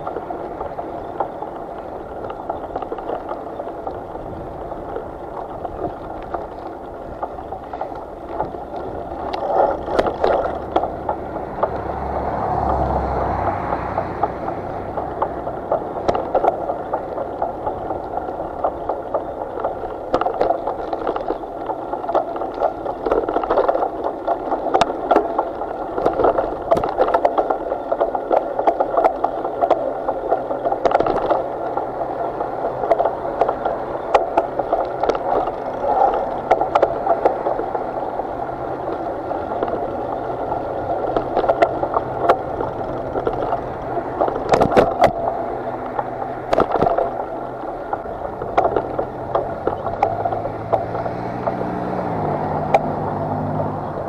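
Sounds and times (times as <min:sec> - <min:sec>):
water rushing along boat hull: 0:00.0 - 0:54.0
clicks and knocks: 0:41.0 - 0:51.6.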